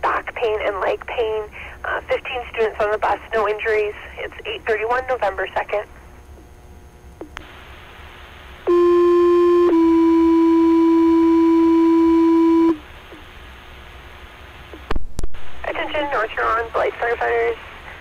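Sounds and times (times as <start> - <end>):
radio hiss: 7.4 - 8.6, 13.1 - 18.0.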